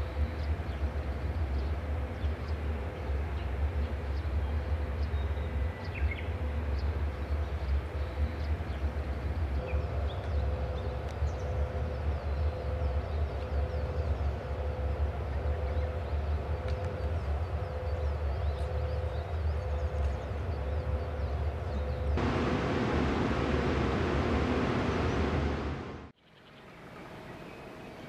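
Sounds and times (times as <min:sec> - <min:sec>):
electric locomotive idling: 0:22.2 - 0:26.1
faint steady tone: 0:22.2 - 0:26.1.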